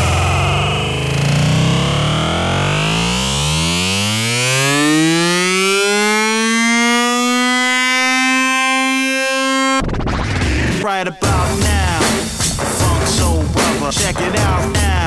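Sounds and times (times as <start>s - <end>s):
electronic note sliding upward: 0.0s - 10.7s.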